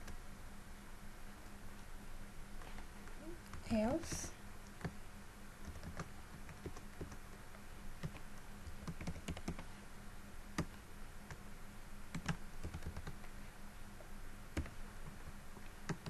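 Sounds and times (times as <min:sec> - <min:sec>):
computer keyboard typing: 0:05.6 - 0:07.4, 0:08.0 - 0:09.7, 0:10.6 - 0:11.4, 0:12.1 - 0:13.3, 0:14.5 - 0:14.8.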